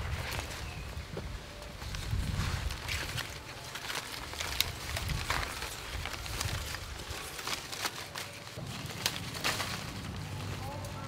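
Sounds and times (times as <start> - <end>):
tree leaves and branches rustling: 0.0 - 11.0
sharp cracks of stems: 2.7 - 11.0.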